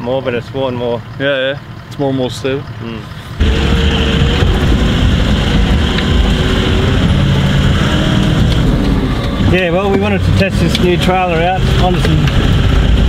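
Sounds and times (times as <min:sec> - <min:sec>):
vehicle engine and road drone: 0:00.0 - 0:13.0.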